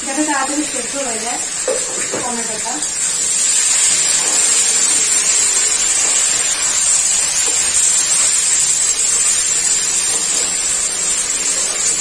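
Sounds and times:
vegetables sizzling in hot oil: 0.0 - 12.0.

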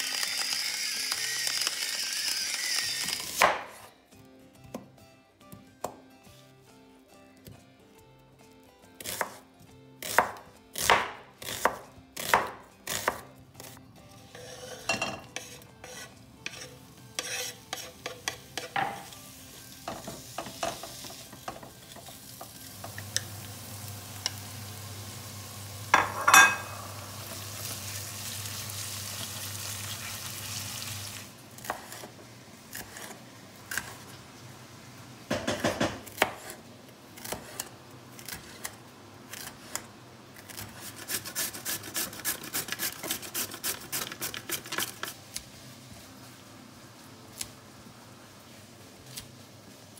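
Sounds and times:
onions frying in a wok: 0.0 - 3.4, 15.9 - 35.8, 40.9 - 49.9
knife chopping on wooden board: 10.0 - 13.3, 35.3 - 36.6.

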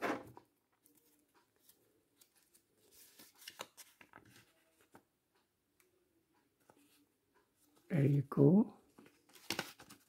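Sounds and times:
paper crackles: 0.8 - 5.0, 9.0 - 10.0
paper sheet rustling: 1.0 - 5.0, 9.0 - 10.0.

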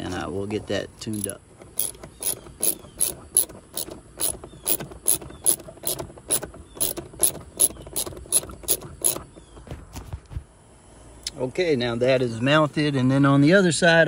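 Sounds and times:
ratchet wrench clicking: 1.2 - 9.2.

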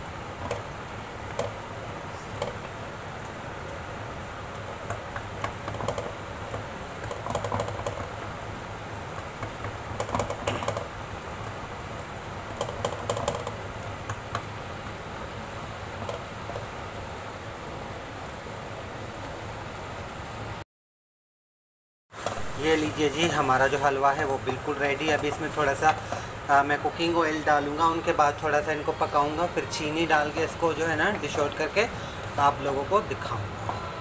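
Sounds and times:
spoon scraping a pan: 24.4 - 26.3.

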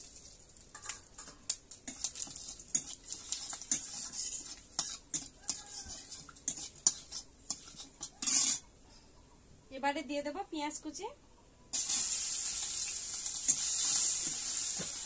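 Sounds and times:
spices sizzling in oil: 0.0 - 8.6, 11.7 - 15.0
metal spatula scraping pan: 0.8 - 8.7.

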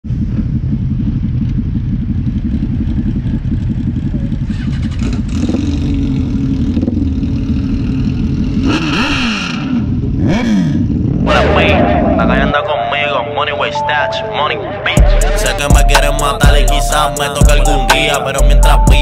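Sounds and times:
motorbike engines revving: 0.1 - 12.7.

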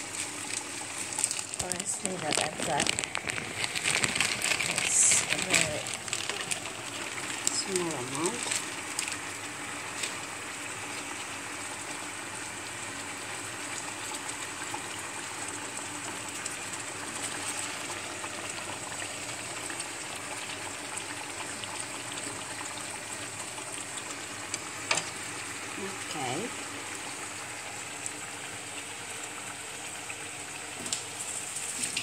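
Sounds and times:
fish sizzling in a frying pan: 0.0 - 32.0.

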